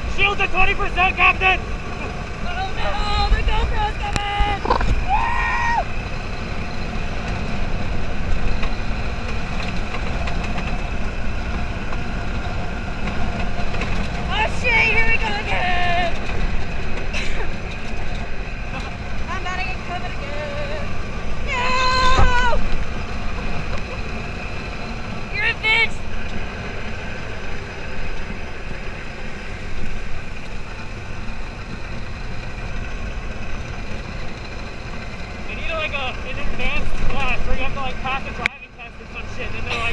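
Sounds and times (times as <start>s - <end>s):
buggy engine rumbling: 0.0s - 39.9s
ride noise: 0.0s - 39.9s
vehicle knocks and rattles: 6.3s - 25.2s.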